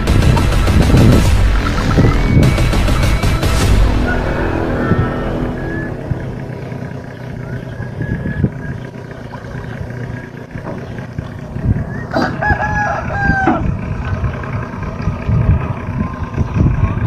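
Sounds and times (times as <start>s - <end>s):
steady low rumble: 0.0s - 17.0s
rooster crowing: 3.9s - 6.4s, 11.9s - 13.8s.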